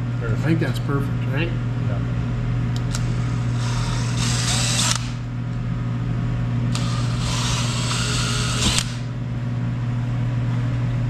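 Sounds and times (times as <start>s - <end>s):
cordless drill drilling plastic: 3.6s - 5.2s, 6.8s - 9.0s.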